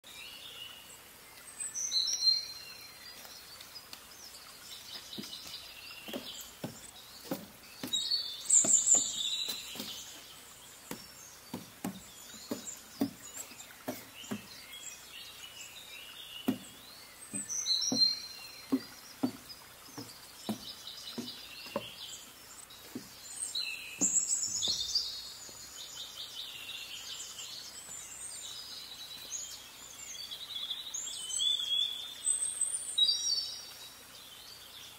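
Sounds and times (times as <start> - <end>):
outdoor background hiss: 0.0 - 34.9
songbird chirping and trilling: 0.0 - 34.9
soft low thuds: 16.4 - 22.2.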